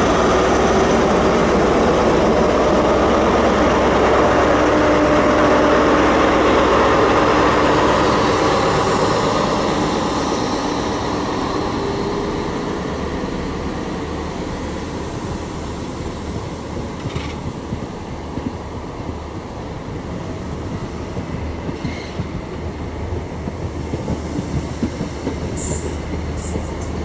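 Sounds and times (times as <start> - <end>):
diesel locomotive engine: 0.0 - 27.0
train wheels rumbling on rails: 0.0 - 27.0.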